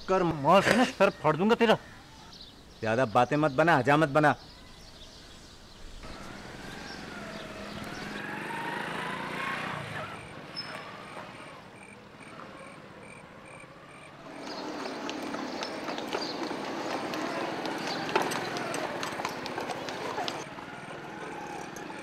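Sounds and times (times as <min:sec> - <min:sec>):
horse hooves on street: 0:06.0 - 0:22.0.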